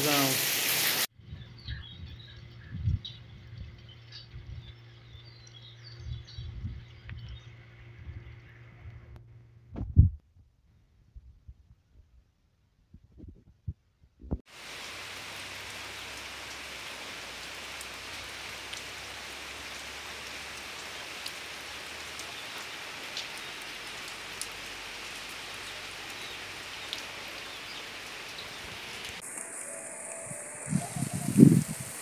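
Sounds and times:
steady rain: 0.0s - 1.1s, 14.5s - 32.0s
raindrops ticking on surfaces: 14.5s - 32.0s.

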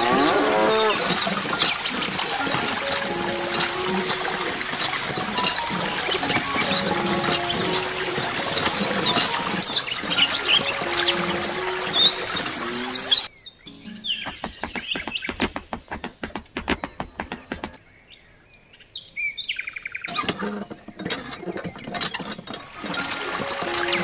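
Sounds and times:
birds chirping: 0.0s - 24.0s
music: 0.9s - 14.1s, 22.8s - 24.0s.

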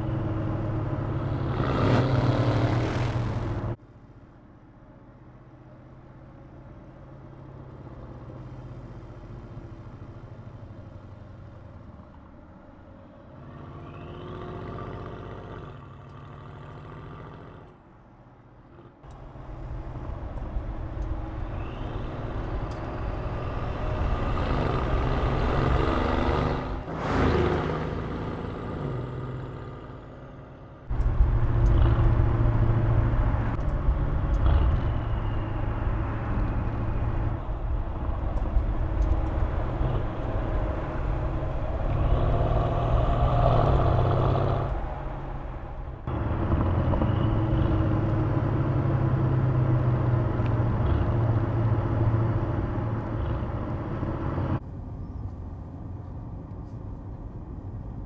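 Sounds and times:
car engine accelerating: 19.0s - 54.6s.

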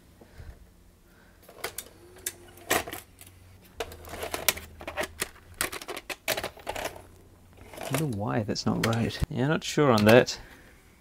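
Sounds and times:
motor hum: 1.1s - 9.0s
tape mechanism clicks and clunks: 1.5s - 9.3s, 9.9s - 10.3s.

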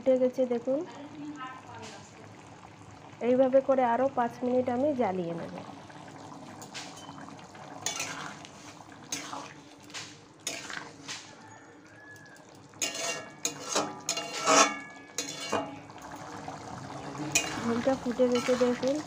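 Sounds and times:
spatula scraping a metal pot: 7.8s - 9.6s, 10.4s - 11.0s, 12.8s - 15.9s, 17.3s - 19.0s.

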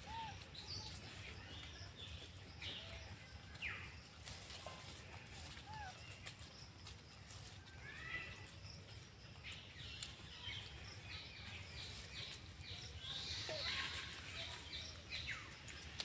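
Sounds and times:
birds chirping: 5.4s - 16.0s.

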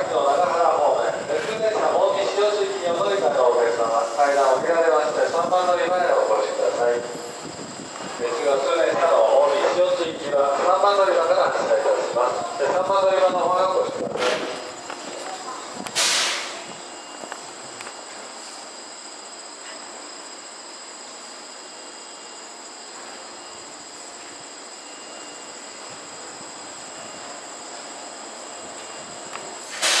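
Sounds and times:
crickets chirring: 0.0s - 30.0s
brief rush of noise: 16.0s - 16.7s, 29.6s - 30.0s.

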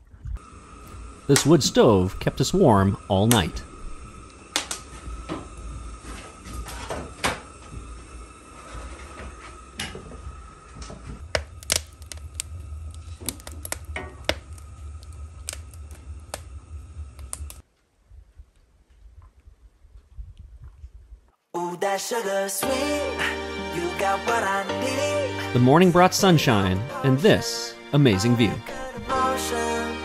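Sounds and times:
low steady rumble: 0.0s - 21.3s
wood fire crackling and popping: 0.3s - 17.6s.

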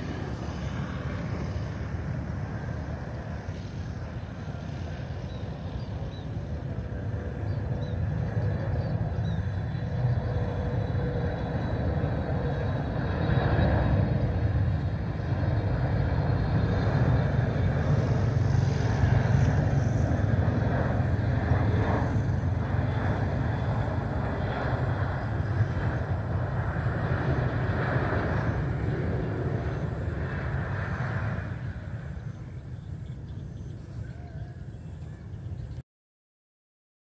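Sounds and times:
low jet engine rumble: 0.0s - 35.8s.

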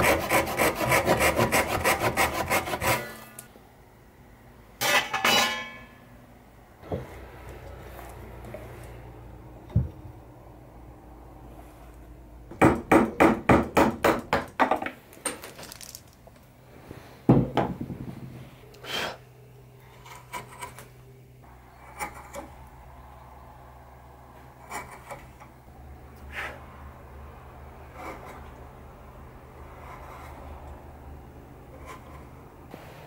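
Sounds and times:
blade scraping wood: 0.0s - 3.5s, 24.6s - 25.5s, 27.8s - 28.6s, 29.6s - 30.8s, 31.7s - 32.6s.

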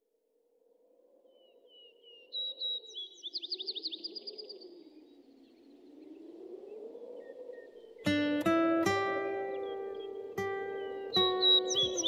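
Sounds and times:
low howling wind: 0.0s - 12.0s
birds chirping: 1.2s - 12.0s
bird trill: 7.2s - 12.0s.

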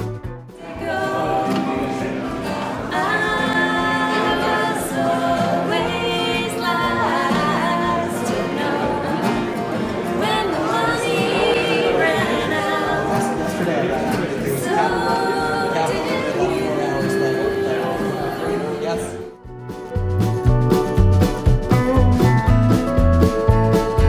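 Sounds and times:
acoustic guitars: 0.0s - 24.0s
women singing: 0.6s - 19.2s.

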